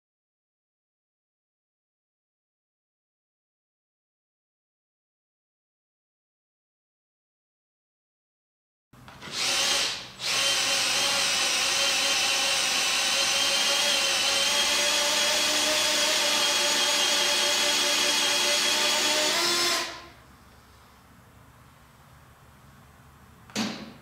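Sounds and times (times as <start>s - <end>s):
power drill spinning: 9.2s - 20.2s.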